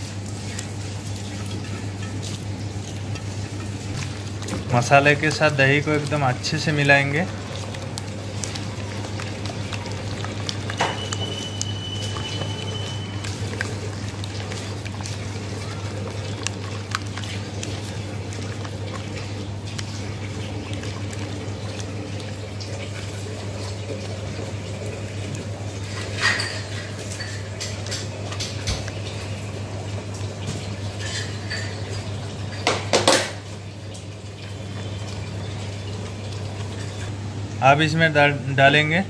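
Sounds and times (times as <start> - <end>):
hand squishing thick paste: 0.0 - 26.2.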